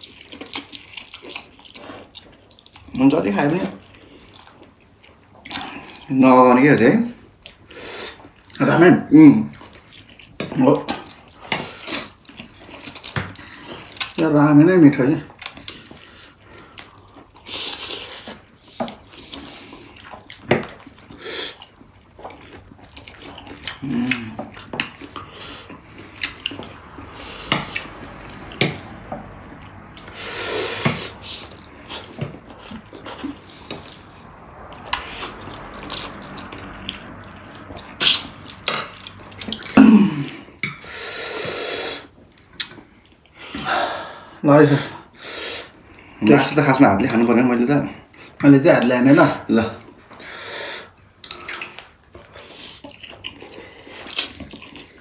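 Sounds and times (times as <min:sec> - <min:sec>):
chewing: 0:00.0 - 0:06.1, 0:07.2 - 0:08.6, 0:09.4 - 0:14.2, 0:15.2 - 0:44.1, 0:45.0 - 0:47.3, 0:49.4 - 0:55.0
slurping noodles: 0:15.4 - 0:42.2.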